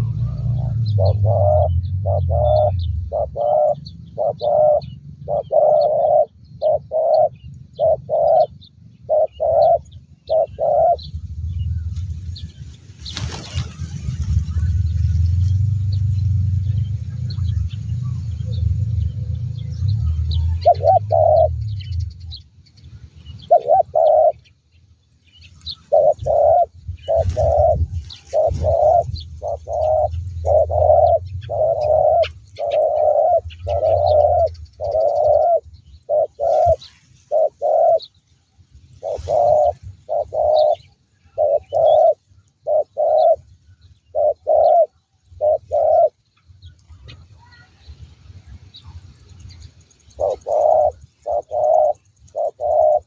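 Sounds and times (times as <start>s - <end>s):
low rumble: 0.0s - 5.4s, 9.8s - 23.5s, 24.3s - 41.3s
doves cooing: 0.0s - 12.0s, 13.0s - 22.3s, 23.3s - 24.5s, 25.6s - 38.2s, 39.0s - 47.7s, 50.0s - 53.0s
faint high bird chirps: 0.0s - 53.0s.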